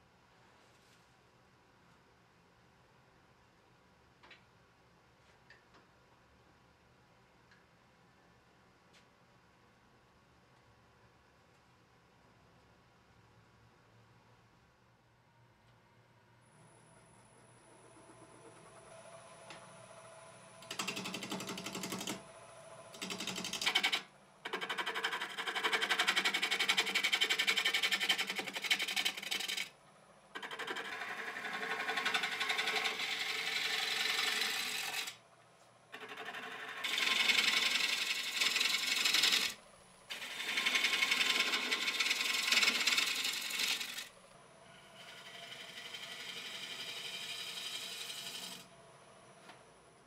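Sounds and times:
lathe tool rasping wood: 23.0s - 29.7s, 30.4s - 35.2s, 35.9s - 44.1s, 44.8s - 48.7s.

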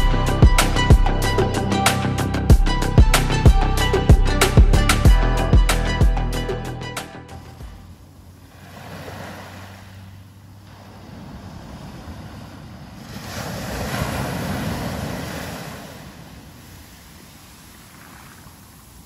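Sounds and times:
surf breaking on beach: 8.5s - 19.0s.

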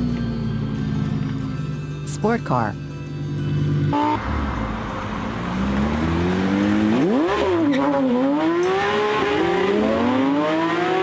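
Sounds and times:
car engine revving: 3.2s - 11.0s.

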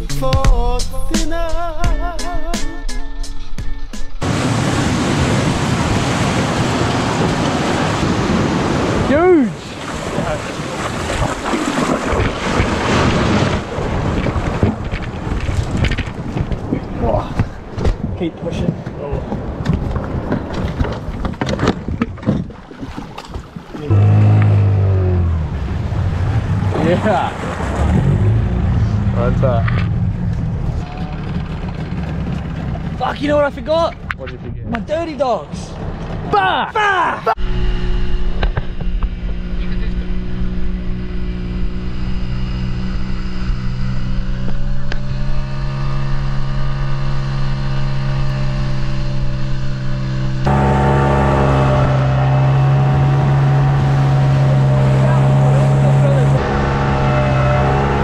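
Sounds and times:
outboard motor running: 4.2s - 34.2s, 37.3s - 58.0s
gear knocking and rustling: 14.1s - 24.6s, 29.5s - 34.4s.

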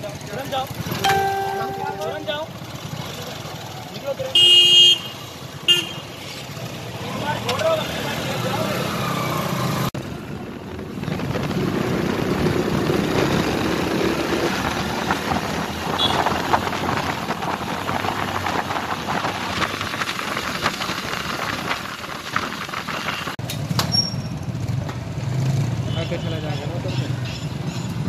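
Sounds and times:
road noise rushing: 5.2s - 23.8s.

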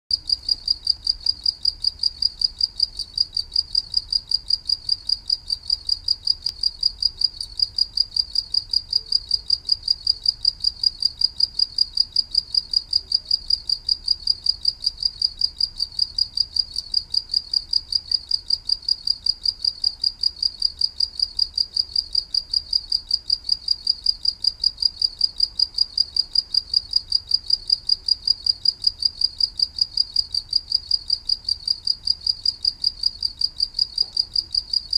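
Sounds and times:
cricket chirping: 0.1s - 34.9s.

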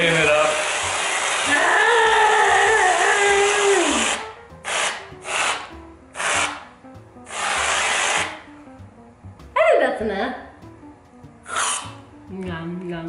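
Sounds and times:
aerosol can spraying: 0.1s - 1.6s, 3.4s - 6.7s, 7.3s - 8.4s, 11.5s - 12.0s.

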